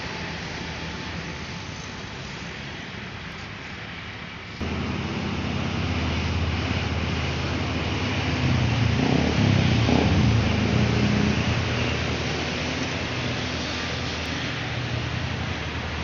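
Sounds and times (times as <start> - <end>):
tyre noise on road: 0.0 - 16.0
truck engine humming: 4.6 - 16.0.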